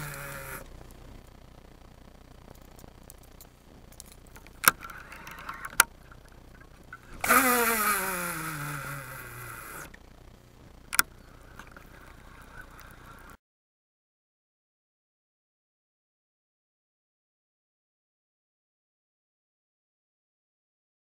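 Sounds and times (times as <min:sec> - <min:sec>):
sharp reel clicks: 0:00.0 - 0:01.1, 0:02.5 - 0:10.0
fishing reel spool whirring: 0:00.0 - 0:13.4.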